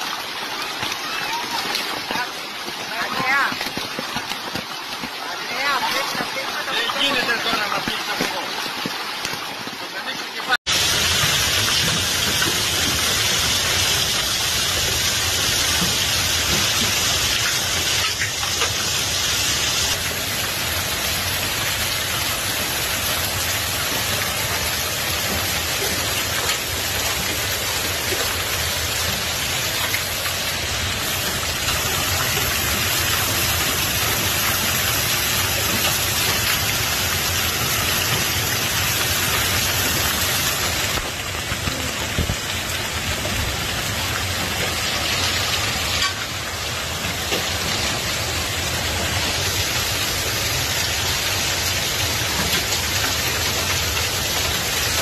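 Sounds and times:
heavy hail and rain falling: 0.0 - 55.0.

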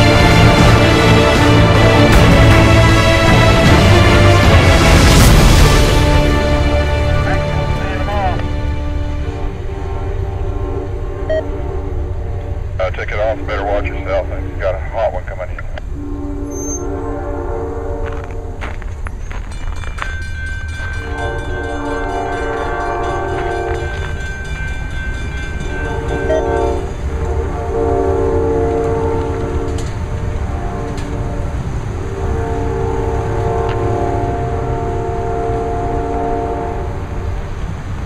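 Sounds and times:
low rumble of train: 0.0 - 38.0
locomotive horn blasts: 5.7 - 18.8, 20.8 - 37.4.

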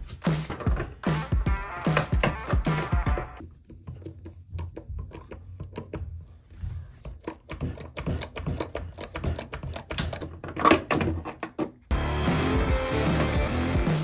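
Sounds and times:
hydraulic punch clicking: 1.7 - 6.1, 7.1 - 11.6.

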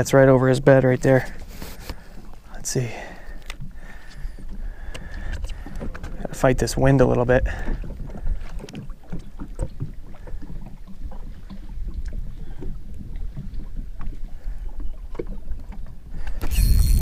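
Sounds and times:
waves lapping against hull: 0.0 - 17.0
wind buffeting microphone: 4.3 - 17.0.

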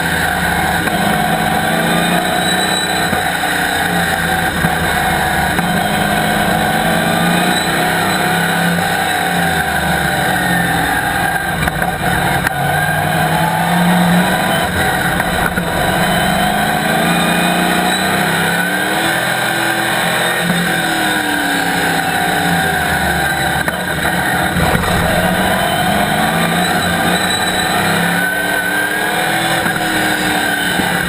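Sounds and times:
race car engine revving: 0.0 - 31.0.

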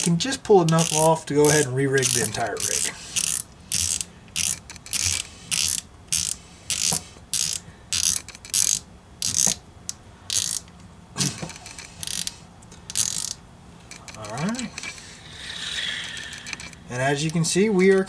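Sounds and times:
fishing reel drag clicking: 0.0 - 9.5, 11.7 - 13.4.

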